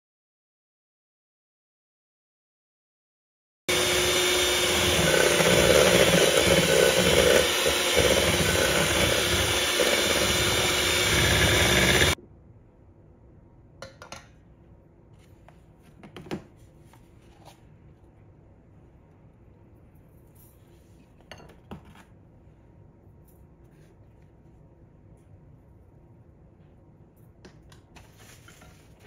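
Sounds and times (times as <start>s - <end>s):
electric hand mixer whirring: 3.7s - 12.2s.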